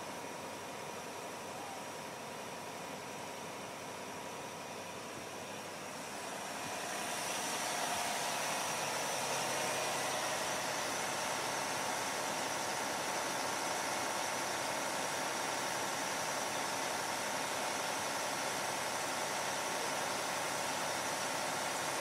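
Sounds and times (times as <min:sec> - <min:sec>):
heavy engines idling: 0:00.0 - 0:22.0.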